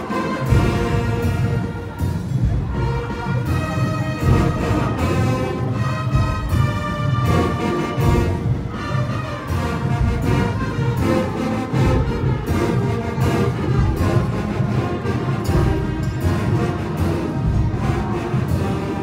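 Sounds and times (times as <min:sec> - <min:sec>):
music with deep drums: 0:00.0 - 0:19.0.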